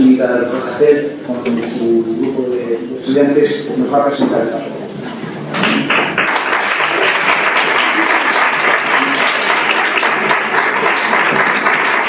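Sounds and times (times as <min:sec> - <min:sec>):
audience applauding: 0:05.5 - 0:12.0.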